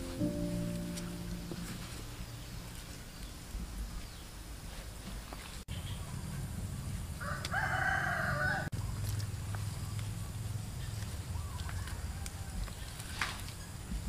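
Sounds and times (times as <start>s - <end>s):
rooster crowing: 7.2s - 8.7s, 11.8s - 12.7s.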